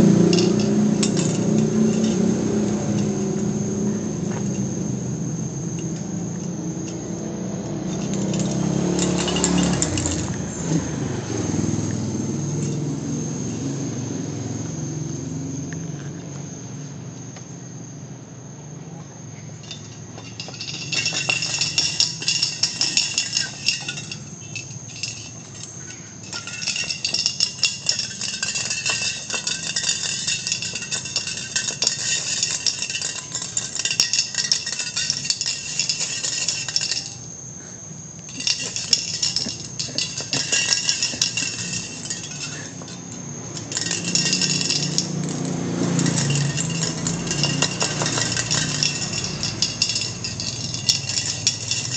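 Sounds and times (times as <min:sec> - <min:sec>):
insects buzzing choruses: 0:00.0 - 0:51.9
insects high steady tone: 0:00.0 - 0:51.9.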